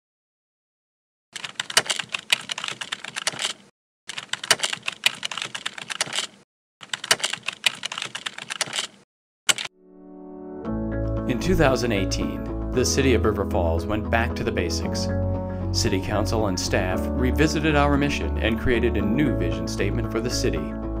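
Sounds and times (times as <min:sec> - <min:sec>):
computer keyboard typing: 0:01.4 - 0:09.7.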